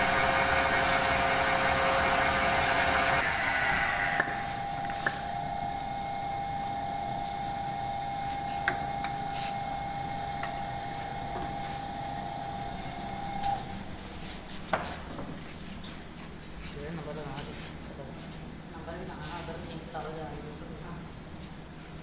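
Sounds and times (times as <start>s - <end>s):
lathe machine whine: 0.0s - 14.2s.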